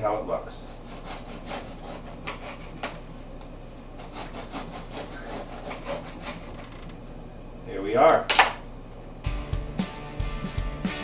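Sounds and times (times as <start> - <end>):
bread knife sawing through bread: 0.5 - 2.9, 4.0 - 6.7.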